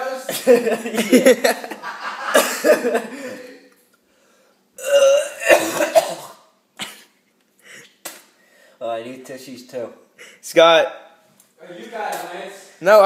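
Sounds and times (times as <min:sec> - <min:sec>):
person retching and gagging: 0:04.8 - 0:07.1.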